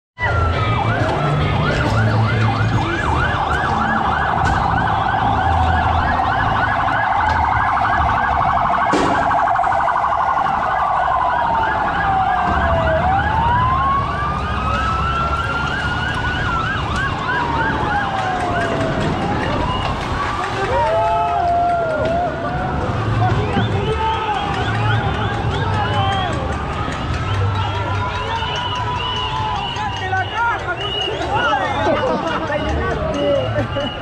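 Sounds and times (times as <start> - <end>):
fast yelping siren: 0.2 - 30.0
slow wailing siren: 0.2 - 30.2
low vehicle rumble: 0.2 - 34.0
sharp bang: 8.9 - 9.6.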